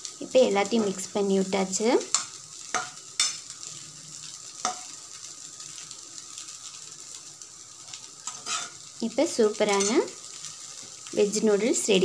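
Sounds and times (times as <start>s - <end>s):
noodles sizzling in a frying pan: 0.0s - 12.0s
spoon knocking against pan: 4.6s - 4.9s.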